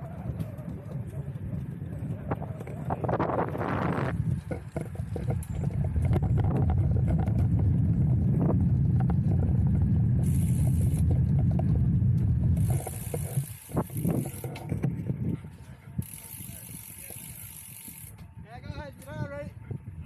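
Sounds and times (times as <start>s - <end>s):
wind and road rumble: 0.0s - 20.0s.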